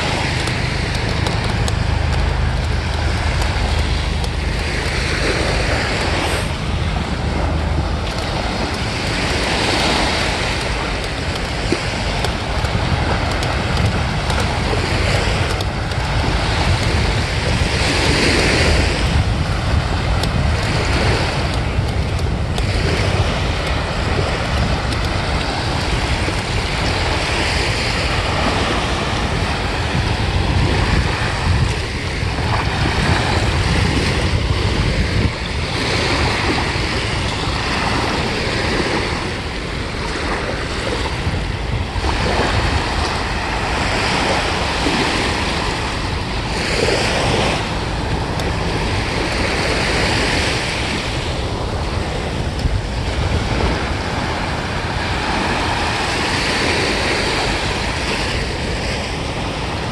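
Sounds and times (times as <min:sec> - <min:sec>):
small waves breaking on shore: 0:00.0 - 0:59.9
wind rumbling on microphone: 0:00.0 - 0:59.9.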